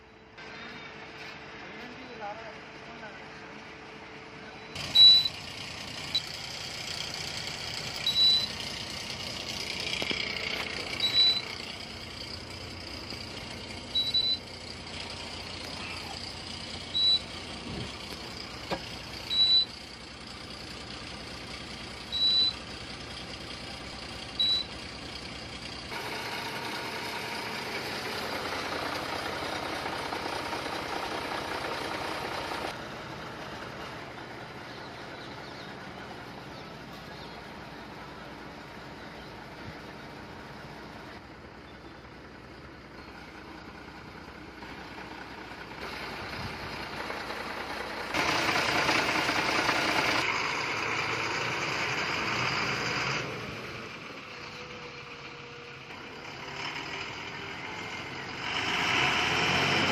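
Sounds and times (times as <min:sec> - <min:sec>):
low vehicle hum: 0:00.0 - 0:59.9
short high electronic beep: 0:04.6 - 0:05.4, 0:08.0 - 0:08.5, 0:11.0 - 0:11.5.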